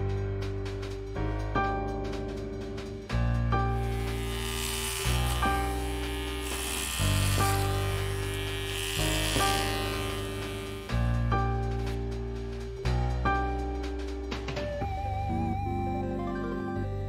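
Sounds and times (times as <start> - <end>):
jazz background music: 0.0 - 17.0
electric shaver buzzing: 3.8 - 11.9.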